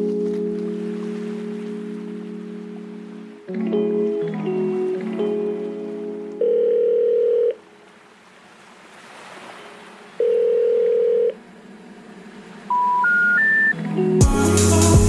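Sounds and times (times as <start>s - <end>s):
low telephone beep: 6.4s - 7.6s, 10.2s - 11.4s, 12.7s - 13.8s
short beeps stepping up in pitch: 12.7s - 13.8s.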